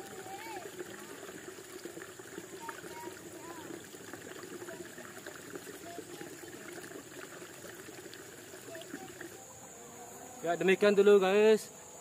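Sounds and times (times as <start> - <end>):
water trickling: 0.0 - 9.5.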